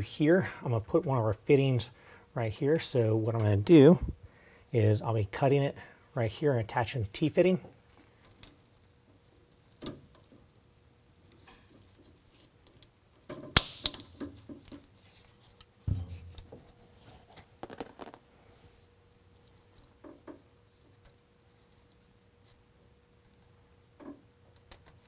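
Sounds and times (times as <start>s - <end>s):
tubing cutter snapping: 13.6s - 14.1s
thump: 15.9s - 16.4s.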